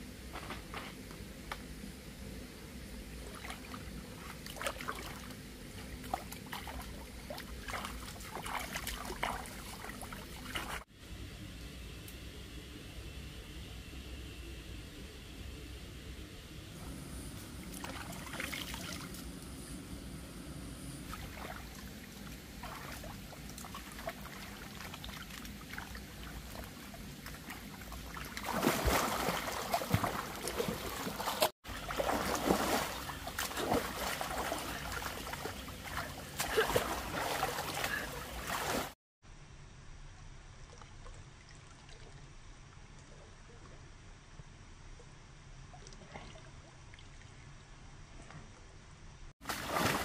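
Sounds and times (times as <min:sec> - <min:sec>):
water splashing and sloshing: 0:03.2 - 0:10.9, 0:16.8 - 0:19.4, 0:21.0 - 0:39.0, 0:40.6 - 0:44.0, 0:45.6 - 0:50.0.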